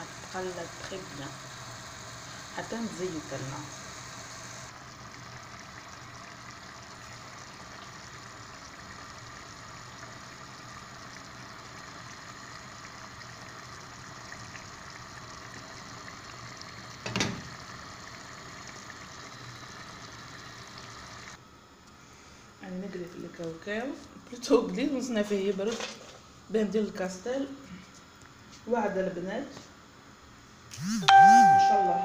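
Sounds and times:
sauce bubbling and sizzling: 0:00.0 - 0:21.4.

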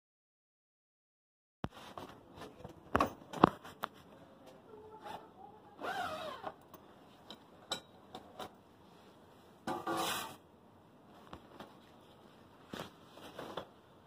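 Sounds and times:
bag zipper rasping open: 0:05.8 - 0:06.5.

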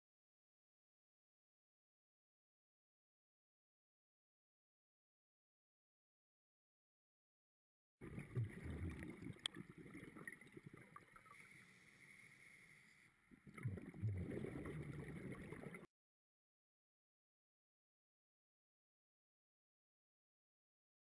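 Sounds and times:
scuba breathing underwater: 0:08.0 - 0:15.8
exhaled air bubbling: 0:08.0 - 0:15.9.

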